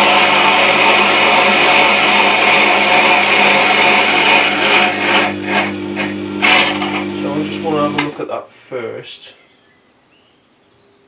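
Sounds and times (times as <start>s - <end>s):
wet stone sharpener humming: 0.0s - 8.2s
dressing tool scraping stone: 1.5s - 7.2s.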